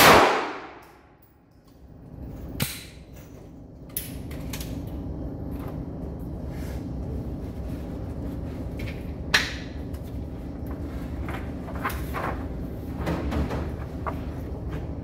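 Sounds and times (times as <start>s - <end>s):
sharp crack: 0.0s - 1.0s.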